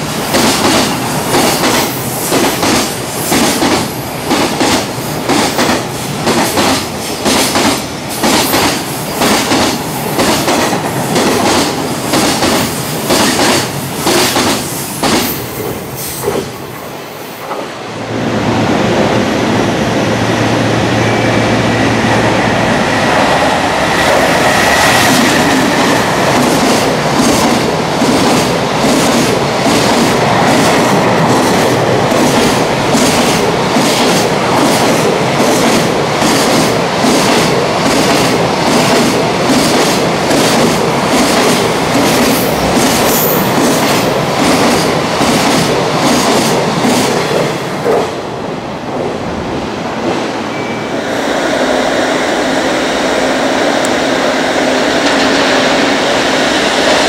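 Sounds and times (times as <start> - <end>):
quieter steady train sound: 0.0 - 57.0
train wheels clattering: 0.2 - 16.6, 24.1 - 48.2.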